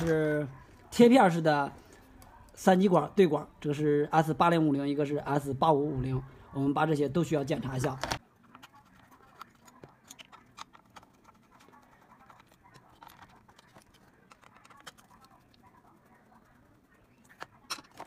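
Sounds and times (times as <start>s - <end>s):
circuit board being handled: 7.7s - 15.6s, 17.0s - 18.0s
screwdriver clicking and scraping: 8.0s - 15.3s.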